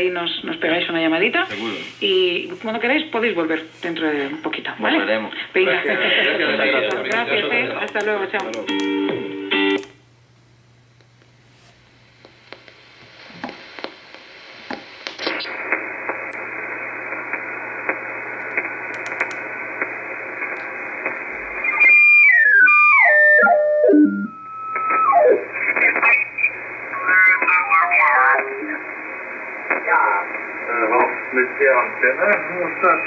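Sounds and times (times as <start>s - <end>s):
radio hiss with static crackles: 0.0s - 33.0s
garbled radio signal: 14.7s - 33.0s
radio tuning whistles: 15.0s - 17.2s, 21.5s - 28.2s.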